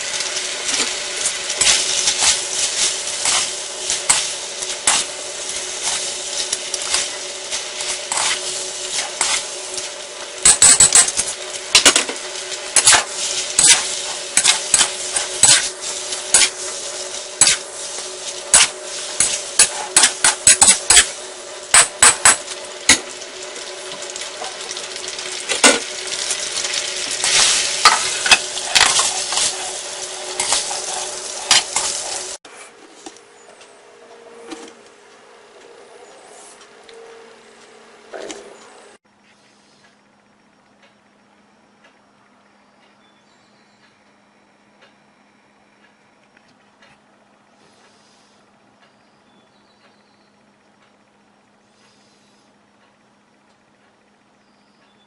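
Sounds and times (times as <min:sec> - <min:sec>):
spatula scraping wok: 0:00.0 - 0:23.2, 0:24.0 - 0:33.2
noodles sizzling in wok: 0:00.0 - 0:32.4.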